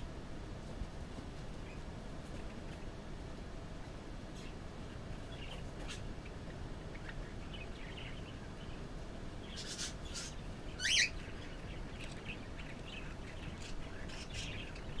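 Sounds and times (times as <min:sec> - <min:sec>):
low background noise: 0:00.0 - 0:15.0
budgerigars chirping: 0:09.4 - 0:15.0.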